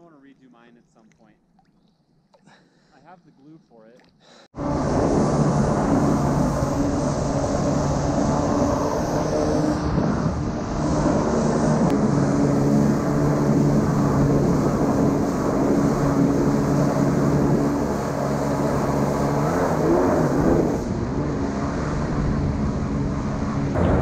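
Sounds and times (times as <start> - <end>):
jet ski engine running: 4.6 - 24.0.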